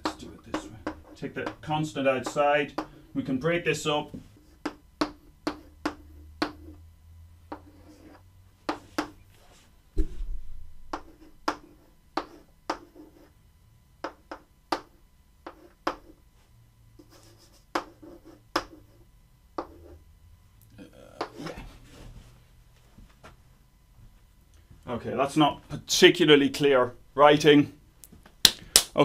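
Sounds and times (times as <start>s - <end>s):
chalk tapping and scraping: 0.0s - 3.0s, 4.1s - 6.8s, 7.5s - 9.7s, 10.9s - 13.4s, 14.0s - 16.2s, 17.0s - 19.0s, 19.6s - 20.0s, 21.2s - 21.6s.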